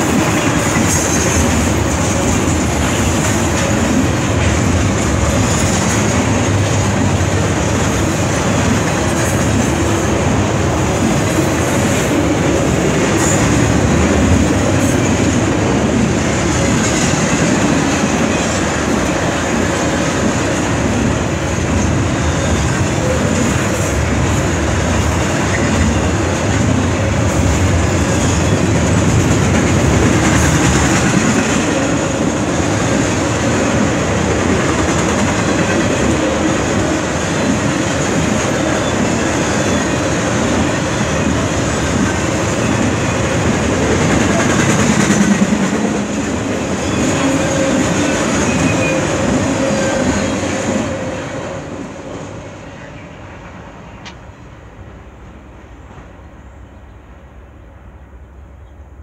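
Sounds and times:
steel wheels clattering on rails: 0.0s - 51.2s
freight train rolling past: 0.0s - 59.0s.

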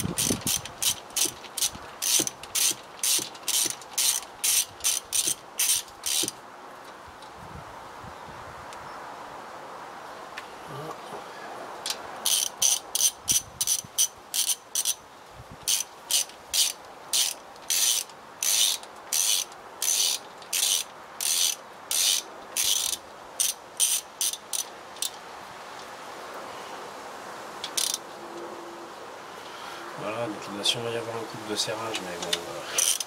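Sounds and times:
ratchet wrench clicking: 0.0s - 6.4s, 11.9s - 15.0s, 15.6s - 25.2s, 27.7s - 28.0s, 32.6s - 33.0s.

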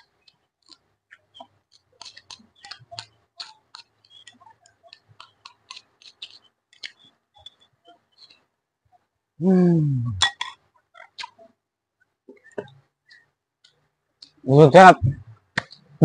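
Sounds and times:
wet chewing: 0.0s - 8.5s.

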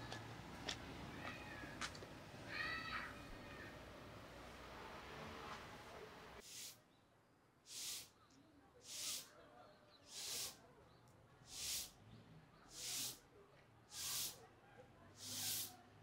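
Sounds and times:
short swishing hisses: 7.7s - 8.1s, 10.1s - 10.6s, 11.5s - 11.9s, 13.9s - 14.4s, 15.2s - 15.8s.

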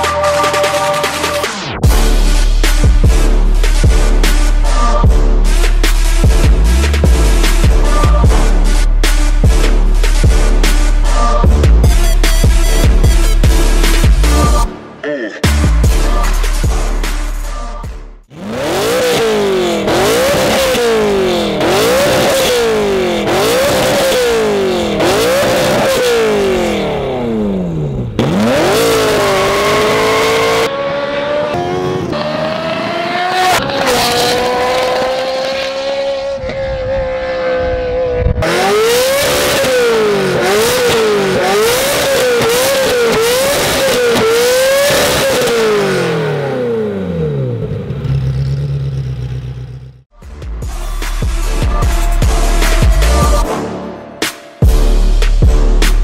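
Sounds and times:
car engine revving: 0.0s - 14.7s, 15.5s - 56.0s.

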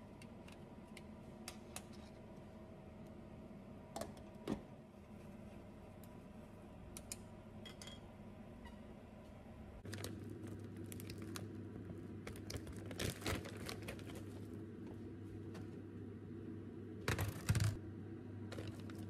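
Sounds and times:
steady low hum: 0.0s - 19.0s
plastic bag crinkling: 9.8s - 14.6s.

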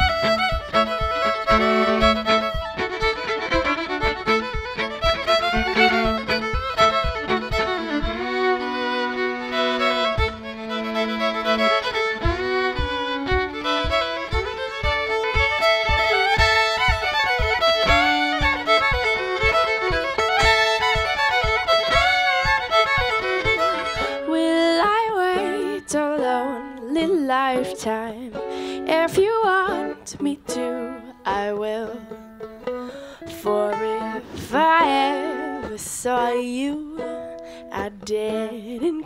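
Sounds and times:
fiddles playing in harmony: 0.0s - 39.0s
plucked mandolin: 0.0s - 39.0s
woman singing: 23.9s - 32.3s, 33.1s - 39.0s.

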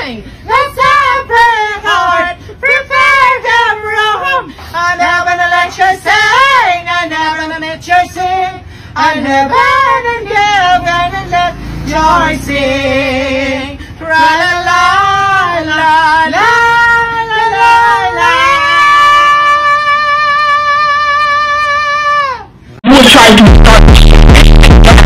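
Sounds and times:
high voice singing: 0.0s - 25.0s.

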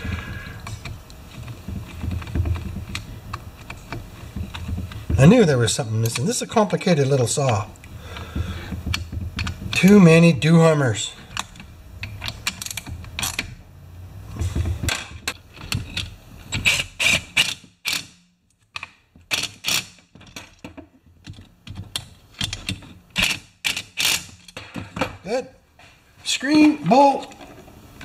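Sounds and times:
tools and parts clicking: 6.0s - 7.8s, 11.2s - 13.6s, 14.8s - 25.2s.

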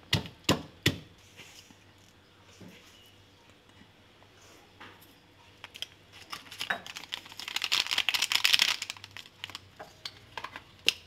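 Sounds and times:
plastic sachet crinkling: 5.6s - 9.8s.

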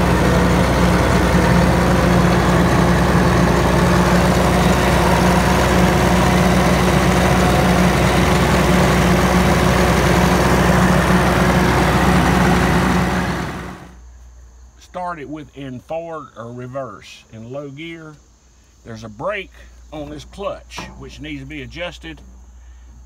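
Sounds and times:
bulldozer diesel engine idling: 0.0s - 14.0s.

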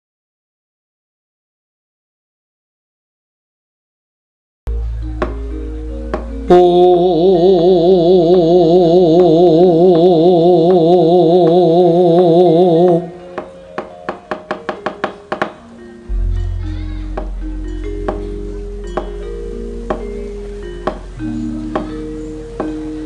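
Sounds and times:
metallophone notes: 4.7s - 23.0s
long wavering held note: 16.1s - 20.6s.

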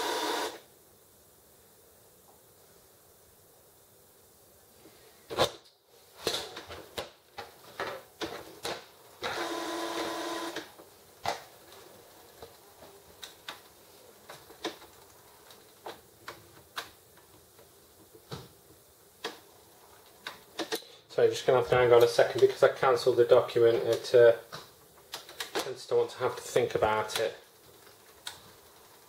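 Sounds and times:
printer motor whirring: 0.0s - 0.6s, 9.2s - 10.7s.

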